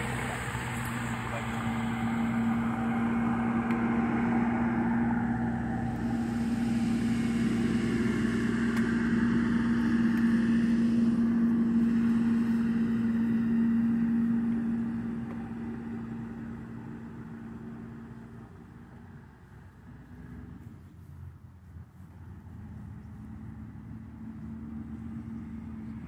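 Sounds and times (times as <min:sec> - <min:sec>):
motor engine humming: 0:00.0 - 0:26.0.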